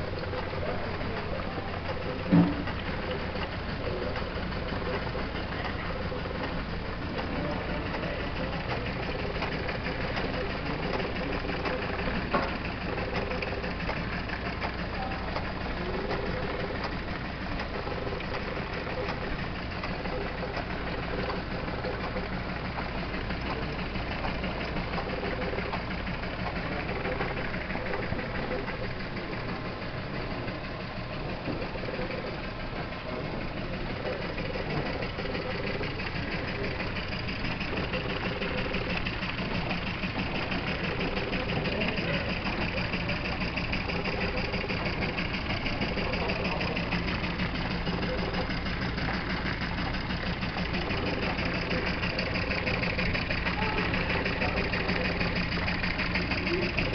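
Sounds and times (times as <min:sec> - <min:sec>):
toy machine shop clattering: 0:00.0 - 0:56.9.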